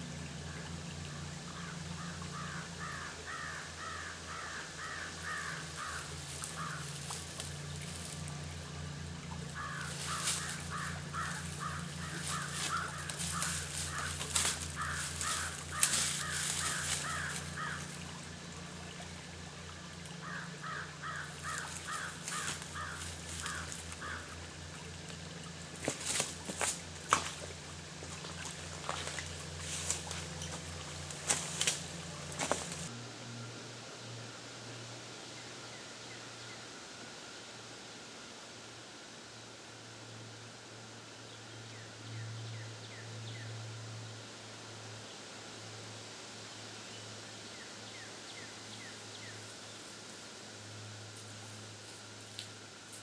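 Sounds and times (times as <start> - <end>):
brush crackling and rustling: 5.3 - 8.6, 9.4 - 18.1, 20.7 - 24.2, 25.0 - 32.9.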